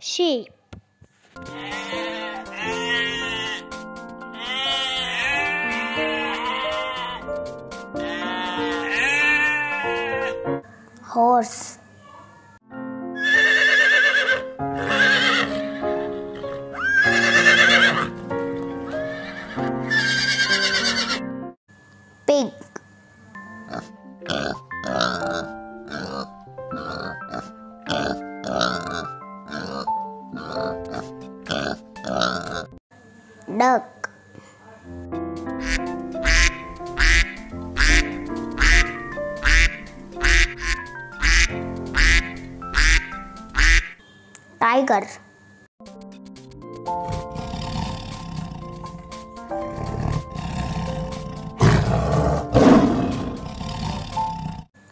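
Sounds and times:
background music: 1.4 - 10.7, 12.6 - 21.6, 23.4 - 32.8, 35.0 - 43.9, 45.8 - 54.7
horse whinnying: 13.2 - 15.9, 16.8 - 18.1, 19.1 - 21.2
duck quacking: 35.6 - 44.0.

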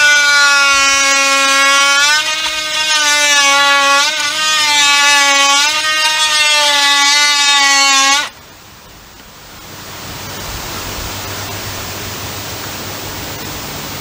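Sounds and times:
cordless drill boring into wood: 0.0 - 8.3.

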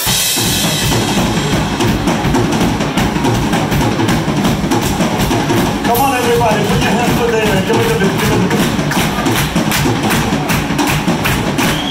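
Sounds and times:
drum kit: 0.0 - 11.9
live rock band playing: 0.0 - 11.9
amplified bass balalaika: 0.1 - 11.9.

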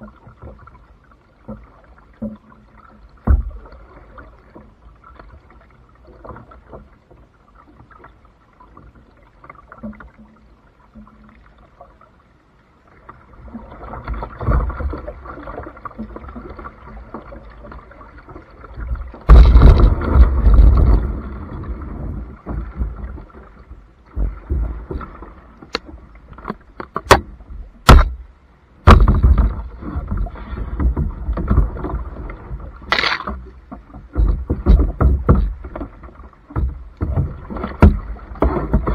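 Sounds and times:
water sloshing against hull: 0.0 - 38.9
paddle strokes splashing: 12.8 - 38.9
sharp knocks: 19.3 - 21.0, 26.9 - 28.2, 28.8 - 29.7.

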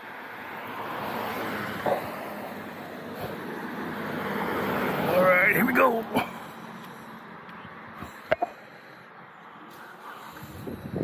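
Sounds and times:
tyres hissing on wet road: 9.7 - 10.7.

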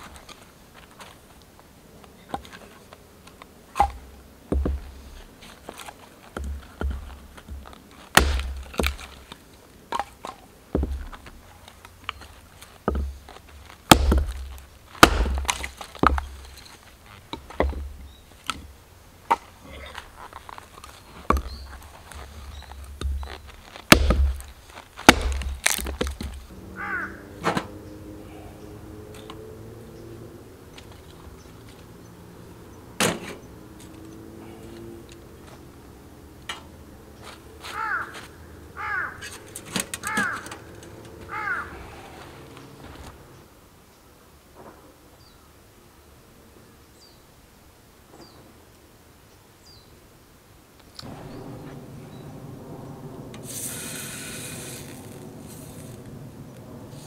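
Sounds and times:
wood being chopped: 3.8 - 5.1, 5.7 - 11.4, 12.1 - 26.5, 37.3 - 40.5.

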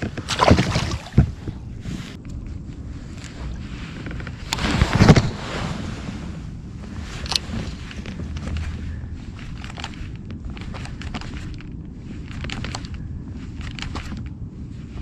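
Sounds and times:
wind rumble on microphone: 0.0 - 15.0
fishing rod handling rustle: 6.9 - 15.0.

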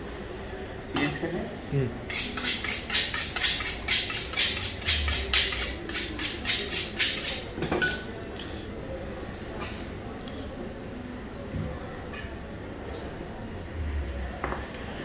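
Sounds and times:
knife honed on sharpening steel: 2.1 - 7.5.

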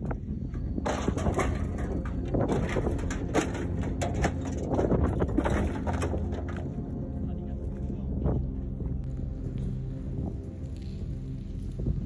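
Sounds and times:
footsteps on wood and metal: 0.0 - 6.9.

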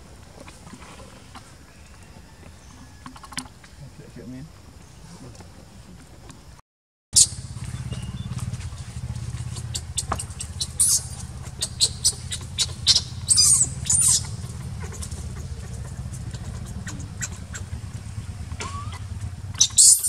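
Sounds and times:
infant monkey squeaking and crying: 7.2 - 17.9, 18.6 - 20.0
steady low hum: 7.2 - 20.0.

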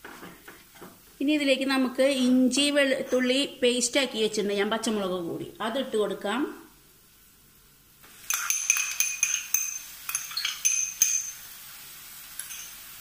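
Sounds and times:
faint steady sizzle: 0.0 - 13.0
spoon scraping a frying pan: 8.2 - 11.4, 12.4 - 12.8.

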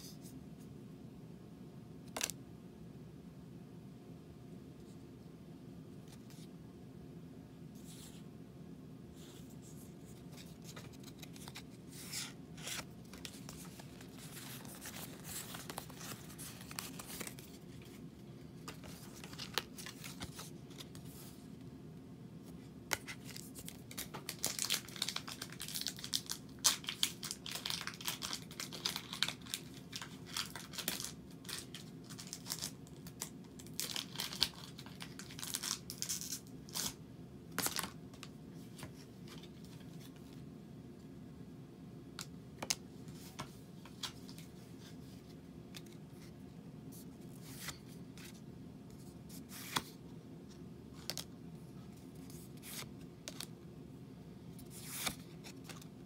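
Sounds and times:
foil wrapper tearing and crinkling: 23.8 - 37.0.

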